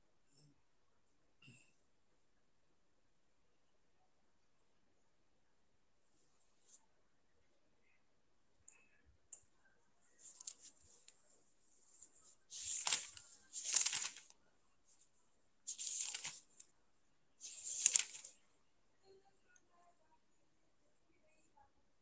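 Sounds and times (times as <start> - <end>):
rustling bursts close to microphone: 11.9 - 14.3.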